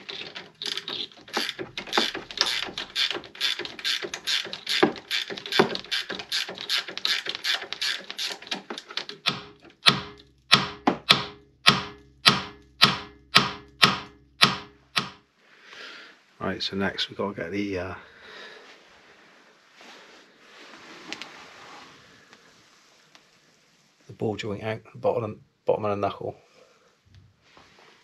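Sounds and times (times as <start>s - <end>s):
ratchet wrench clicking: 0.6s - 8.6s.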